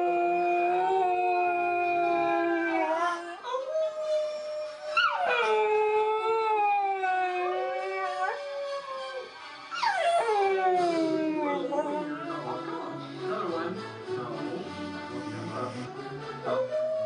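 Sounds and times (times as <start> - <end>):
dog howling: 0.0 - 12.3
recorded dog howl playback: 0.0 - 12.4.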